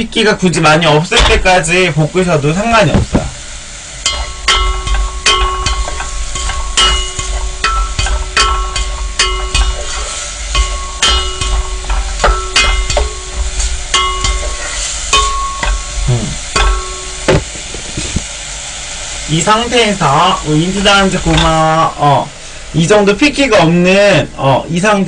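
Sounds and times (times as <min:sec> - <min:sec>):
light sizzle: 0:00.0 - 0:25.0
pot ringing: 0:04.0 - 0:17.3
spatula knocking and scraping pot: 0:04.1 - 0:15.9.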